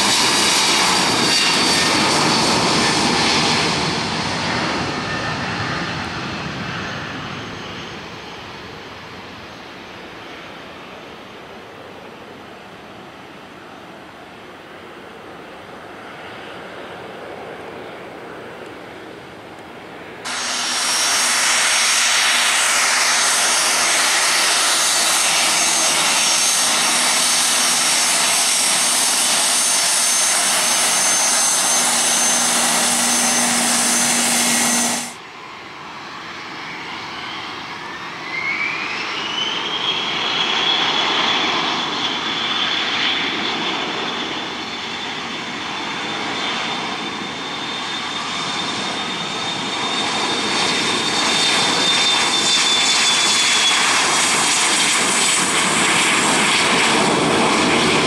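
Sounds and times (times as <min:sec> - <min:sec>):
jet engines whining: 0:00.0 - 0:11.2, 0:17.3 - 0:58.0
distant airliner takeoff roar: 0:00.0 - 0:58.0
jet engines spooling up: 0:20.3 - 0:35.5.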